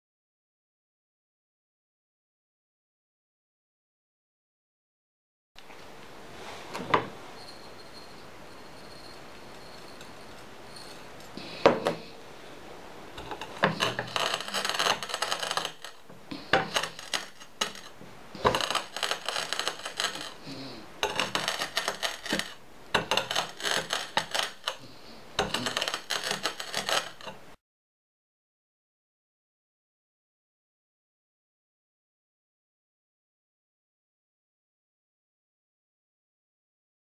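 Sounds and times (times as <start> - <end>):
hammer crunching scrap on stone: 13.2 - 27.4.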